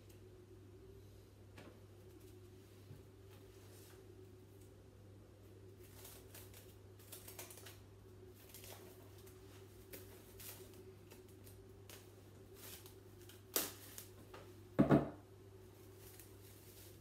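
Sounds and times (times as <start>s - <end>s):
sharp plastic crackle: 5.7s - 14.6s.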